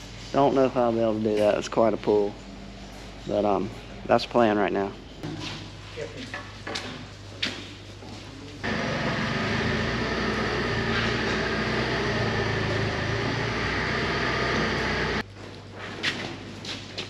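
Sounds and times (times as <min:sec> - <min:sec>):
forklift hydraulic lift drone: 0:08.6 - 0:15.2.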